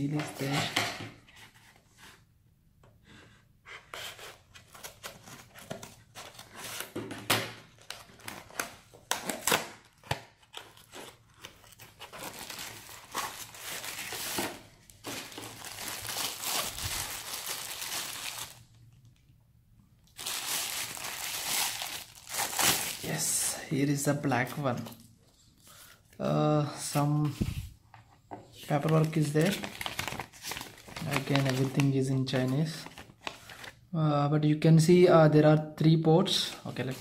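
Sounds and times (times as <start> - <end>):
plastic bag crinkling: 11.6 - 19.2, 20.1 - 23.4, 28.7 - 33.8.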